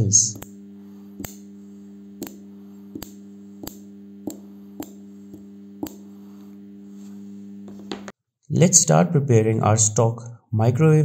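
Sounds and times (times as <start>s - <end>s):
spot welder humming: 0.0s - 8.2s
sharp welding snaps: 0.2s - 6.4s.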